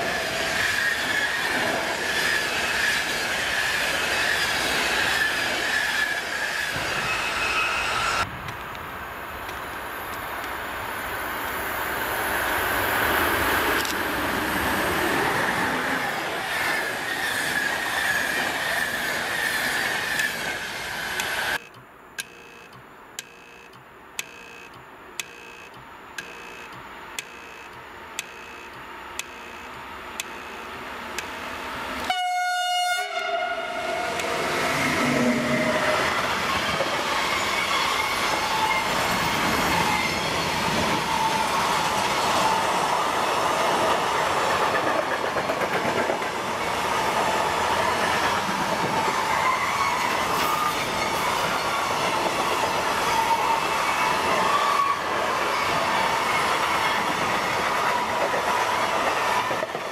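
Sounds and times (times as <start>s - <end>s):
regular ticking: 21.2s - 31.4s
train horn: 32.0s - 34.3s.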